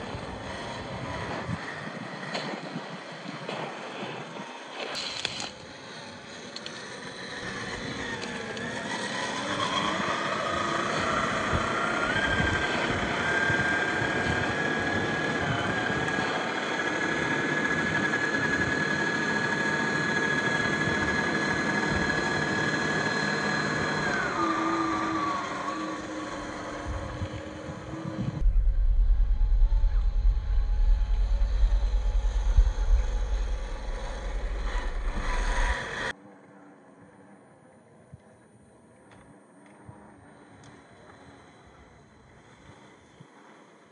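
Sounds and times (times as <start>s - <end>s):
electric motor whining: 4.2s - 36.1s
loud low rumble: 28.2s - 36.1s.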